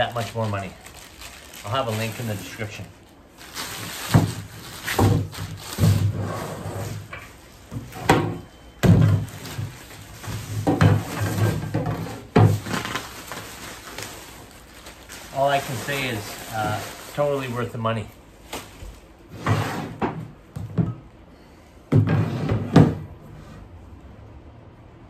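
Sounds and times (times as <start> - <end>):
plastic packaging rustling: 0.0 - 8.0, 8.9 - 19.3.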